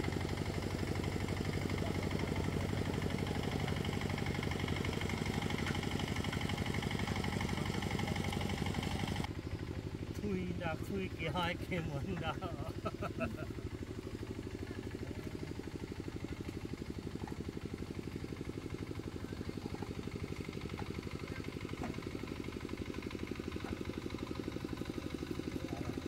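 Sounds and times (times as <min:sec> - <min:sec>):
diesel engine idling: 0:00.0 - 0:26.0.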